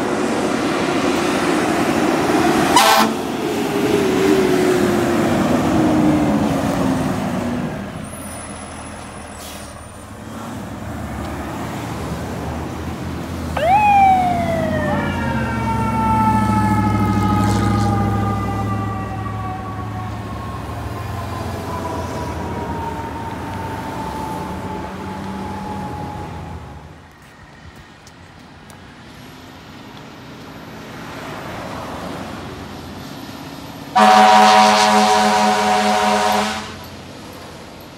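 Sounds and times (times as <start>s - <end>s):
truck engine low rumble: 0.0s - 31.0s
fire trucks passing: 0.0s - 37.9s
horn blast: 2.7s - 3.2s, 34.0s - 36.8s
siren wailing: 13.6s - 26.9s.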